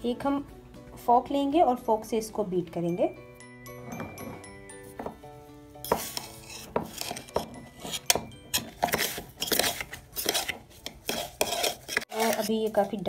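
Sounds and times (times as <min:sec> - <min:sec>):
fork scraping and clinking in metal mug: 0:05.8 - 0:13.0.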